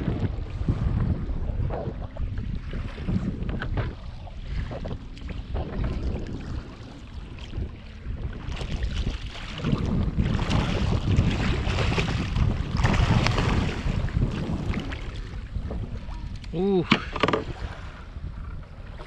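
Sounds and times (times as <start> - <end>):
wind buffeting microphone: 0.0 - 19.0
shark thrashing and splashing: 8.7 - 14.9.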